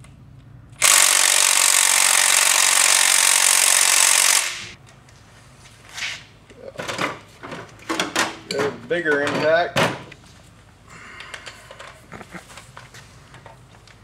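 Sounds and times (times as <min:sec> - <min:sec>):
impact wrench hammering on bolt: 0:00.8 - 0:04.8.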